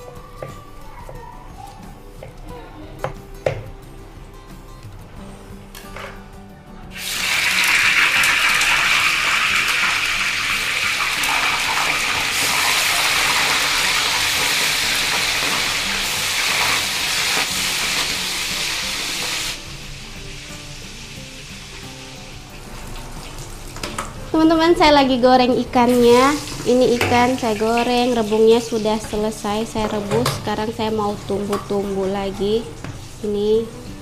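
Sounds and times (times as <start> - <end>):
fish sizzling in hot oil: 6.9 - 24.4.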